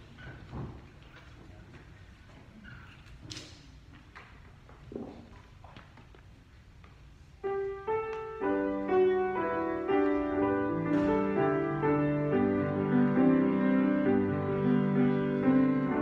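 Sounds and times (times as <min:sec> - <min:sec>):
faint clicks and shuffling: 0:00.0 - 0:08.4
keyboard playing hymn chords: 0:07.5 - 0:16.0.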